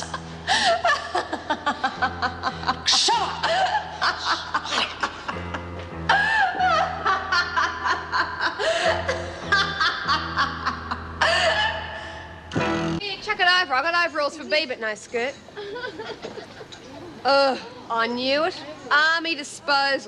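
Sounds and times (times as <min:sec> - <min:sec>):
woman laughing: 0:00.0 - 0:11.9, 0:15.6 - 0:17.8
background music with low notes: 0:00.0 - 0:13.0.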